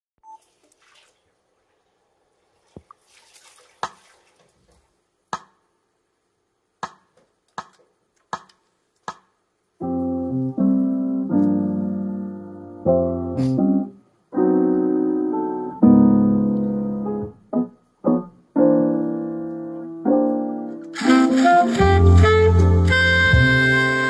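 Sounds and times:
piano playing sustained chords: 9.8 - 24.0.

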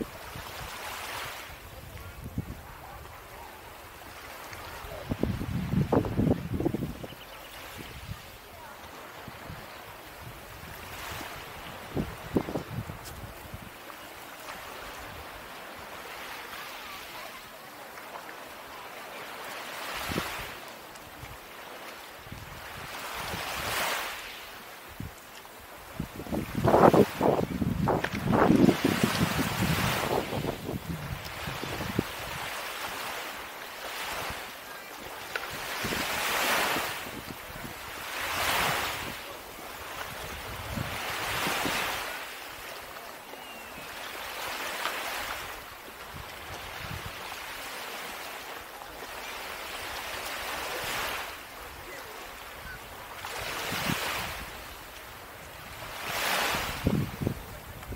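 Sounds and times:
waves washing onto shore: 0.0 - 57.9
wind: 0.0 - 57.9
wind buffeting microphone: 4.9 - 8.2, 9.2 - 13.8, 25.9 - 32.5, 39.9 - 42.0, 55.5 - 57.9.

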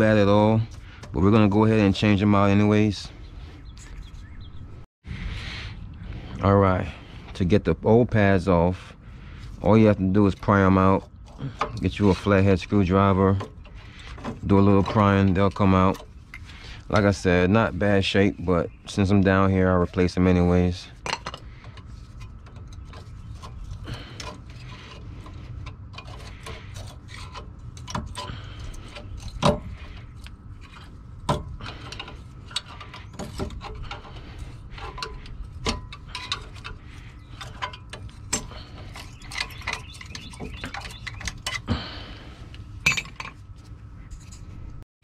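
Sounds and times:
faint steady hum: 5.1 - 44.8
metallic clicks and scrapes: 18.9 - 44.8
screwdriver prying brake pads: 21.2 - 41.7.

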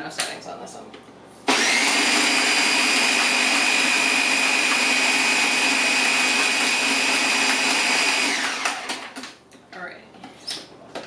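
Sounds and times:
blender motor whine: 1.5 - 9.2.

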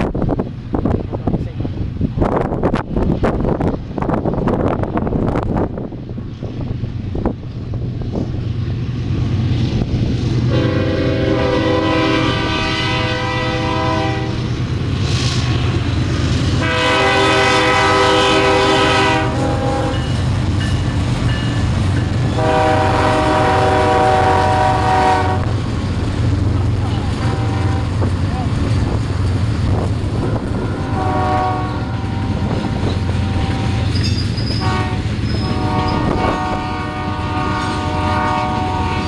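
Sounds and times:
diesel locomotive engine rumble: 0.0 - 39.0
locomotive air horn blasts: 10.5 - 14.5, 16.6 - 20.1, 22.3 - 25.5, 26.8 - 28.1, 30.1 - 39.0.

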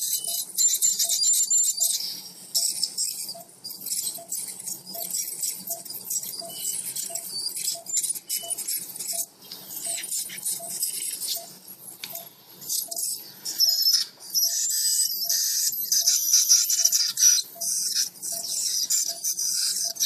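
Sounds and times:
monitor beeps: 0.0 - 20.0
dental scaler hissing and crackling: 12.6 - 20.0.

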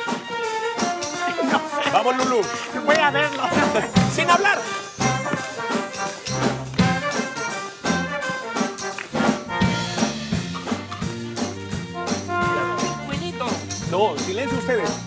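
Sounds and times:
instrumental music with percussive beat: 0.0 - 15.0
bass line: 2.9 - 4.4, 6.3 - 8.4, 9.1 - 15.0.

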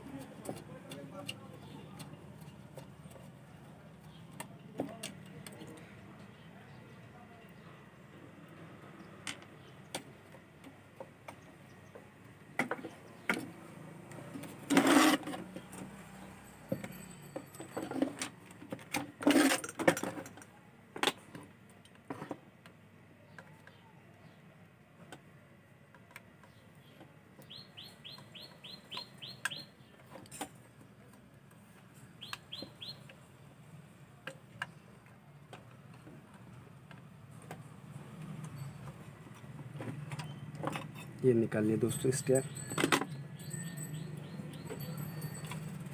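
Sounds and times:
bird chirping: 26.4 - 30.1, 32.2 - 33.2, 42.3 - 45.4.

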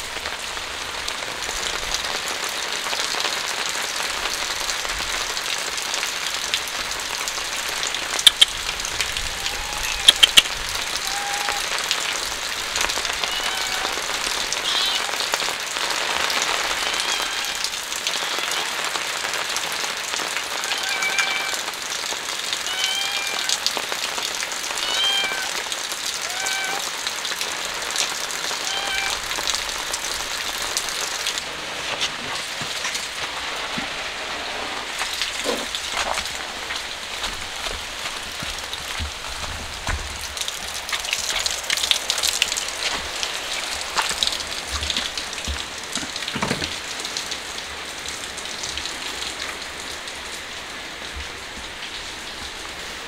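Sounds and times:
steady rain falling: 0.0 - 53.0
sharp clicks: 8.2 - 8.6, 10.0 - 10.5
cat mewing: 9.1 - 11.9, 13.0 - 15.4, 16.5 - 19.0, 20.5 - 21.7, 22.6 - 23.8, 24.8 - 26.9, 28.5 - 29.4, 35.3 - 35.8.

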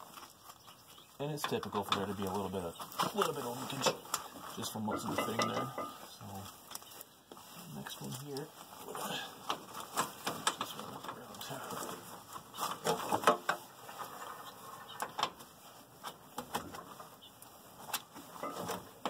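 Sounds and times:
metal hose couplers clicking and knocking: 4.9 - 6.0.

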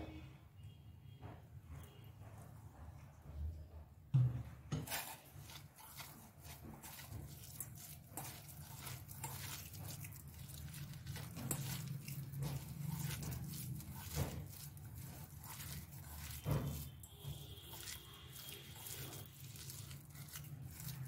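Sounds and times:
hands squishing food mixture: 4.7 - 21.0.

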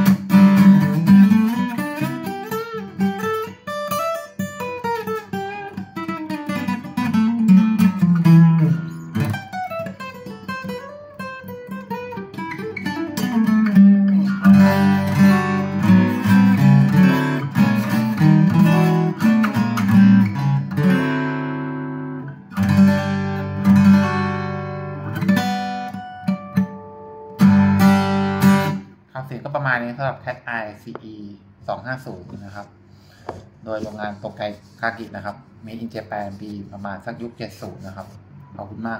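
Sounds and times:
fingerpicked acoustic guitar: 0.0 - 29.0.

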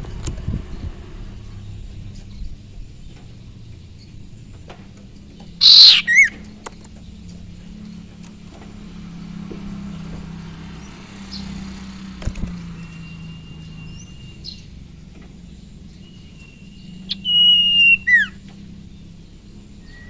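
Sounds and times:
bird call with whistle: 5.6 - 6.4, 16.2 - 18.4.

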